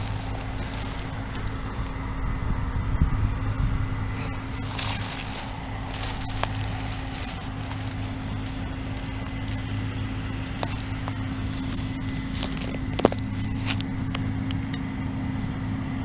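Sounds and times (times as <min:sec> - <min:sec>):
footsteps crunching on stubble: 0:00.0 - 0:02.0, 0:04.2 - 0:14.2
combines droning: 0:00.0 - 0:16.0.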